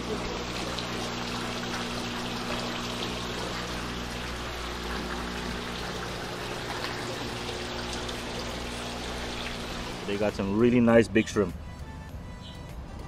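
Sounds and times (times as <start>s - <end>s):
water splashing and bubbling: 0.0s - 10.4s
steady low hum: 0.0s - 10.6s.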